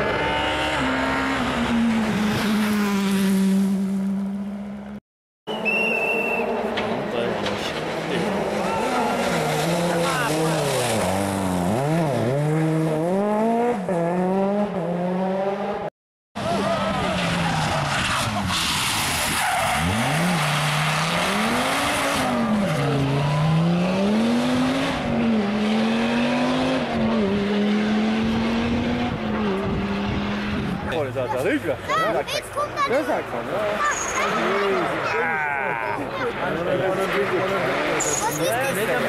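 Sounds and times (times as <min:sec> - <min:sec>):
rally car engine revving: 0:00.0 - 0:04.9, 0:05.7 - 0:30.9, 0:36.6 - 0:39.0
rally cars passing: 0:00.0 - 0:39.0.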